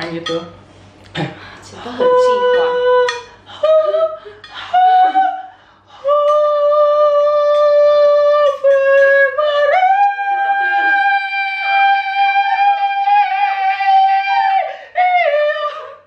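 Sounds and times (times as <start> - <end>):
person singing mock-operatic notes: 6.0 - 16.0.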